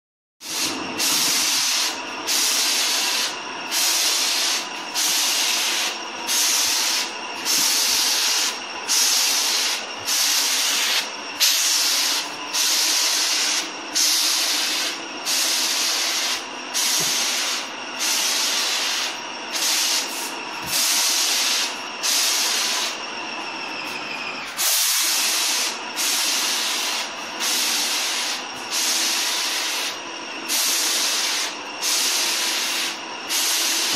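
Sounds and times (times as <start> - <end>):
sprayer hissing in pulses: 0.4 - 23.0
steady hum: 0.4 - 33.9.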